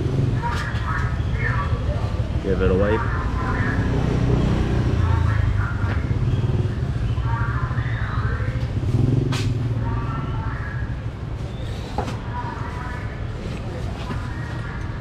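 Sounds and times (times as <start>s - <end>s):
motorbike engines rumbling: 0.0s - 15.0s.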